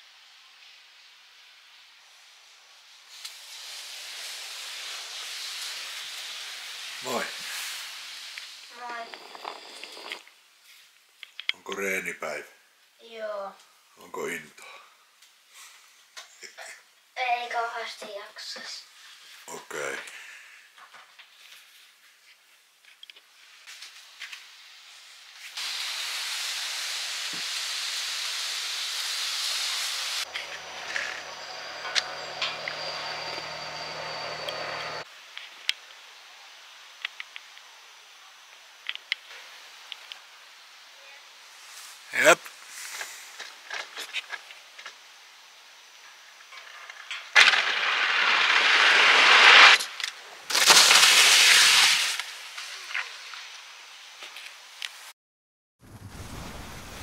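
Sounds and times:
skis rushing down ski jump track: 3.1s - 10.3s, 25.4s - 35.1s, 46.6s - 53.4s
skis landing on matted slope: 46.9s - 53.1s.

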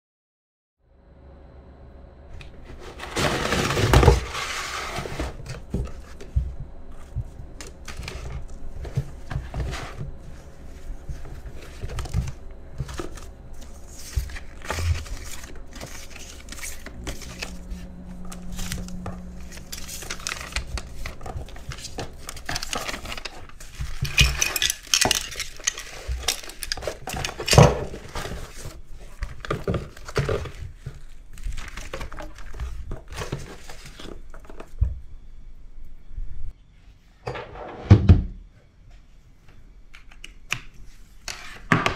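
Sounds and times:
paper rustling: 2.4s - 34.8s.

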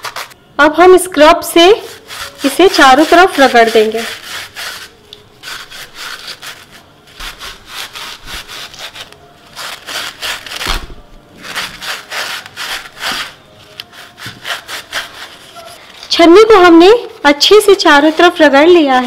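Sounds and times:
scrub pad rasping on metal mesh: 1.9s - 10.6s.

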